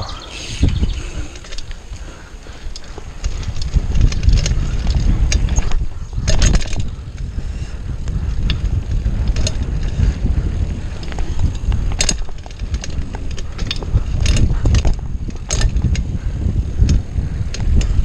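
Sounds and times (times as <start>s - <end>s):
bicycle rattling over bumps: 0.0s - 18.0s
wind buffeting microphone: 0.0s - 18.0s.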